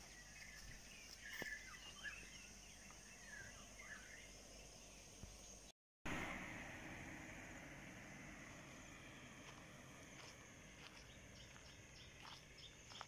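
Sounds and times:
bird chirps: 0.0 - 5.7, 10.8 - 13.0
high insect drone: 6.3 - 13.0.

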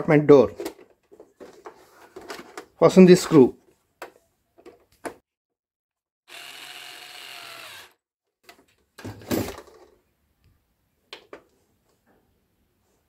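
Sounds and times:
electric screwdriver running: 6.3 - 8.0.

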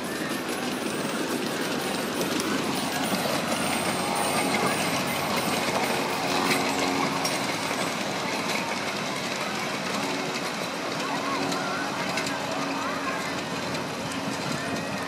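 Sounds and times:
miniature train wheels clattering: 0.0 - 15.0.

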